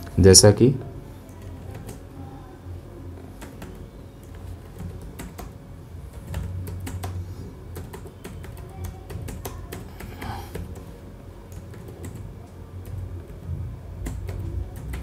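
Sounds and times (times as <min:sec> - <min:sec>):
keyboard typing clicks: 0:03.4 - 0:10.9, 0:11.5 - 0:13.4, 0:14.0 - 0:15.0.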